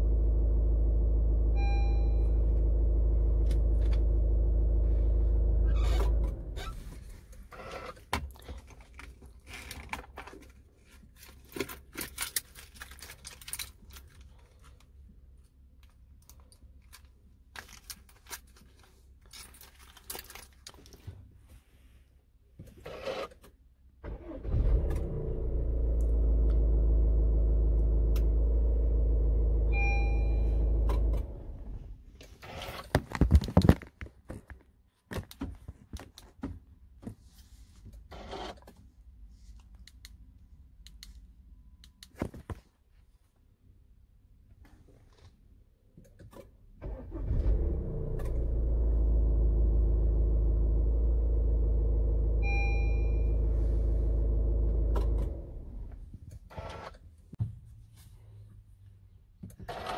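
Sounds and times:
car engine running: 0.0 - 6.6, 47.5 - 56.0
short electronic beep: 1.6 - 2.4, 29.7 - 30.7, 52.4 - 53.4.

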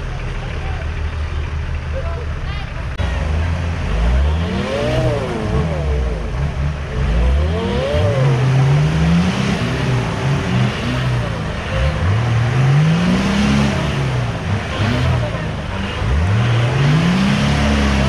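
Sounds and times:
off-road engines revving hard: 0.0 - 18.0.

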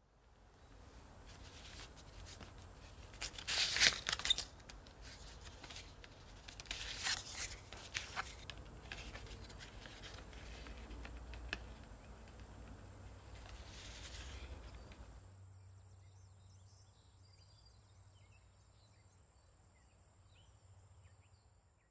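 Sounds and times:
cards rustling against leather wallet: 1.2 - 15.1.

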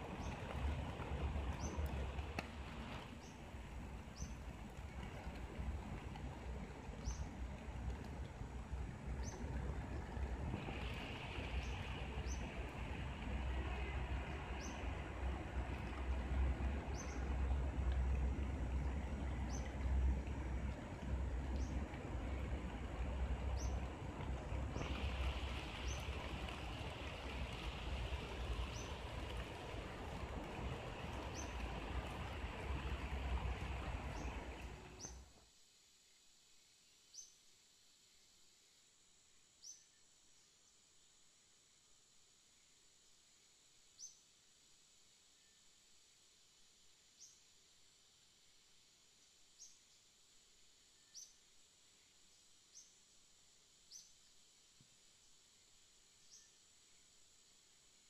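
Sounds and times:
low rumble: 0.0 - 35.3
light rain hissing: 0.0 - 58.0.

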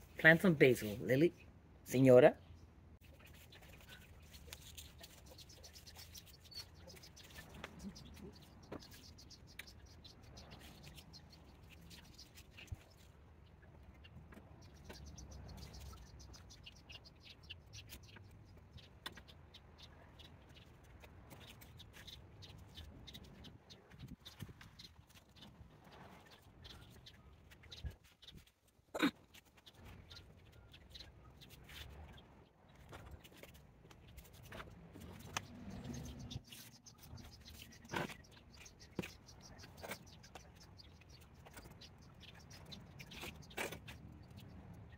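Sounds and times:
hands rustling potting soil: 3.0 - 17.0.

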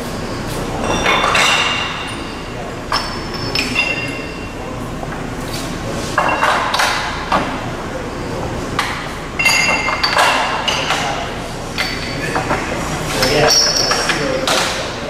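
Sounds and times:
high metallic pings: 0.8 - 4.6, 9.4 - 10.8.

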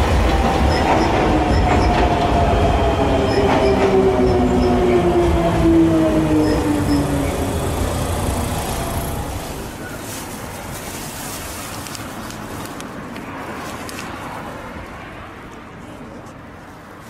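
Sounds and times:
electric train moving away: 0.0 - 9.9
outdoor background noise: 0.0 - 17.0.

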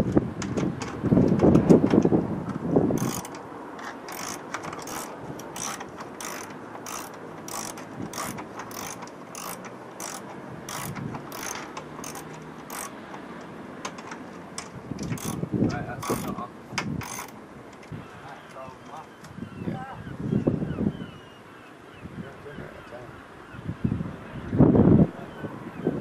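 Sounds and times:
ratchet spanner clicking: 3.0 - 13.2, 13.9 - 15.4, 16.0 - 16.4, 17.0 - 17.4.

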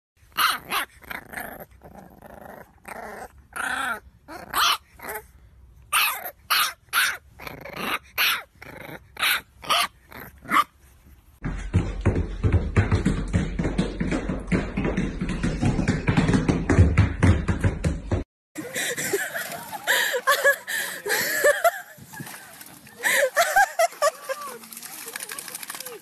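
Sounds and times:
puppy barking and yapping: 0.2 - 1.3, 3.7 - 5.2, 5.9 - 10.8
puppy growling: 0.4 - 5.3, 7.1 - 10.7.

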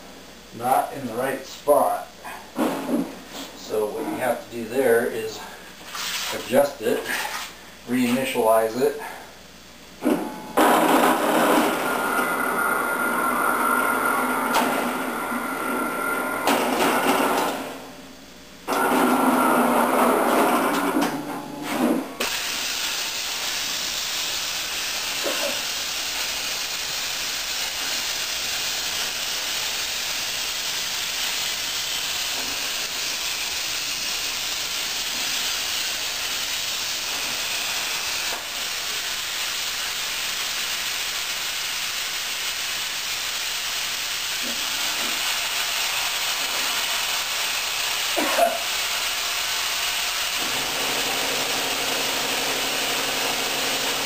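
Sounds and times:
plasma torch hissing: 10.6 - 18.9, 21.8 - 50.6.

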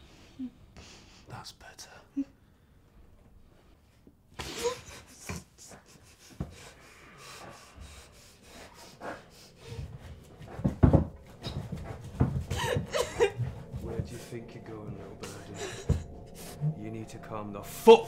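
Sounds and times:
person breathing and panting: 4.4 - 16.8
rubbing and rustling: 7.4 - 17.2
heavy low thumps: 9.7 - 18.0.

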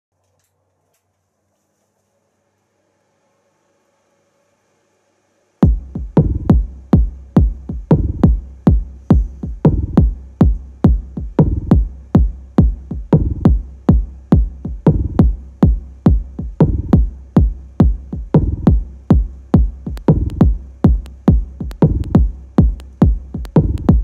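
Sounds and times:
deep kick drum hits: 5.6 - 24.0.

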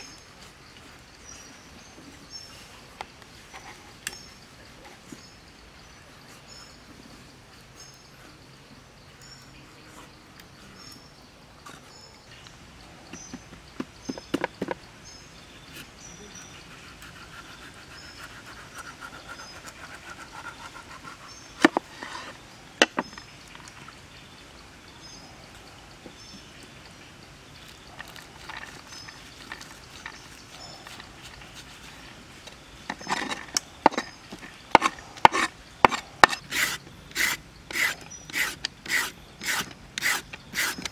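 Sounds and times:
knife scraping: 34.7 - 40.9.

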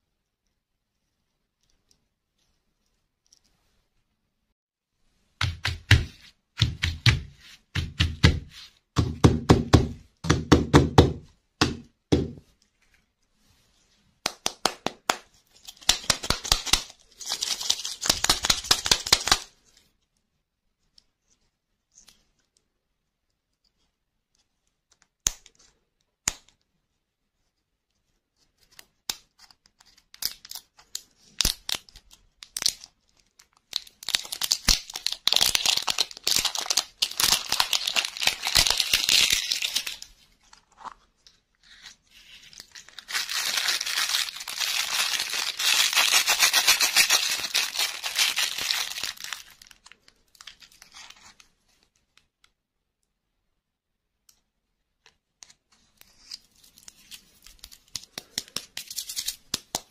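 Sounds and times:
plastic wrapper crinkling and tearing: 15.5 - 19.5, 29.8 - 41.0, 41.6 - 52.2, 56.0 - 59.9.

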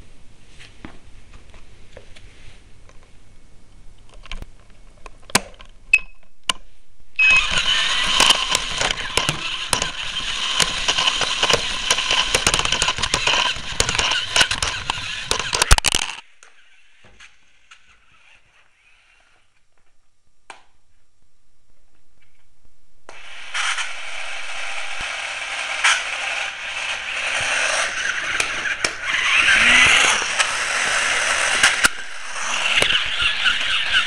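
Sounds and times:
crackling rattle with whine: 7.3 - 16.3.

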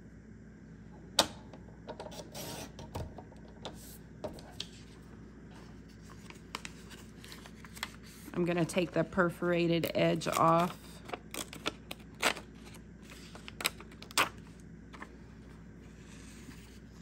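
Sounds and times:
paper rustling: 4.6 - 8.9.

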